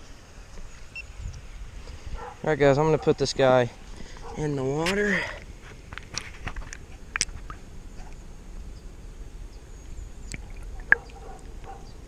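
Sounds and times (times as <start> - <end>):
sharp clicks underwater: 6.0 - 8.2, 10.3 - 11.8.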